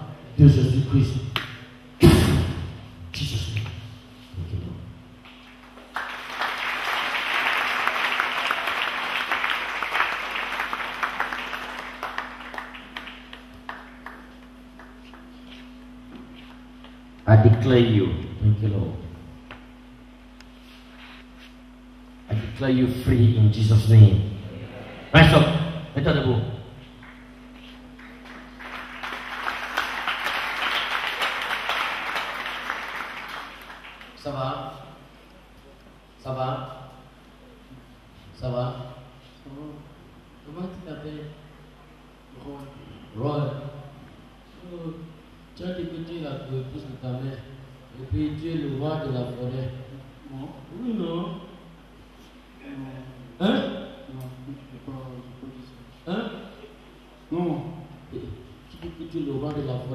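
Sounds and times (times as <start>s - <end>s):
crowd clapping: 5.2s - 15.4s, 27.0s - 34.4s.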